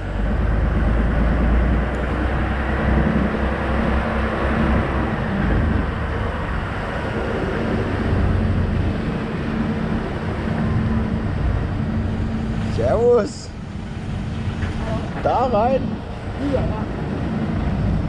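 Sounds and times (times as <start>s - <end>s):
truck diesel engine low drone: 0.0s - 18.0s.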